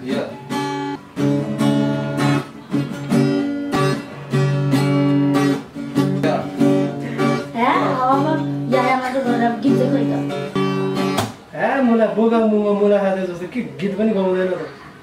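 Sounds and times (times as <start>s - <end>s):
acoustic guitar strumming chords: 0.0s - 12.0s.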